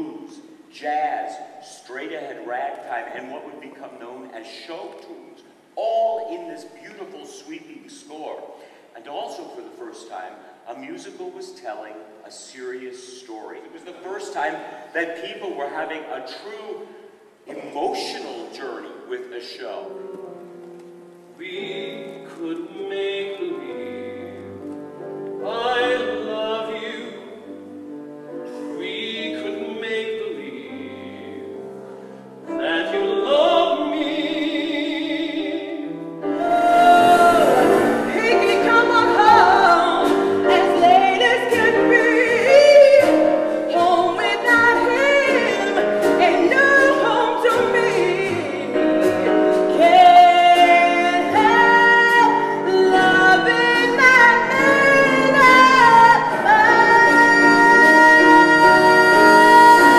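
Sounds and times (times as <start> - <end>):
grand piano: 0.0 - 59.9
man and woman singing duet: 21.4 - 24.8, 25.4 - 27.6, 28.5 - 31.6, 32.4 - 59.9
woman singing full-voiced: 34.8 - 43.2, 49.8 - 59.9.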